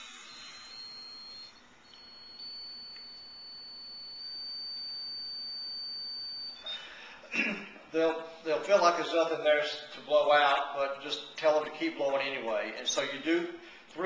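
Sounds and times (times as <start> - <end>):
high-pitched sensor tone: 0.0 - 7.1.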